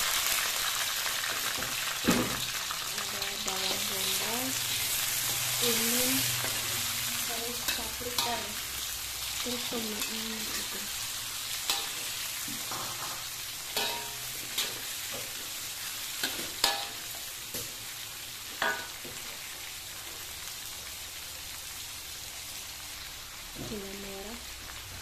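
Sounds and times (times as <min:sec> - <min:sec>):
vegetables sizzling in oil: 0:00.0 - 0:25.0
metal spatula scraping wok: 0:03.2 - 0:17.6.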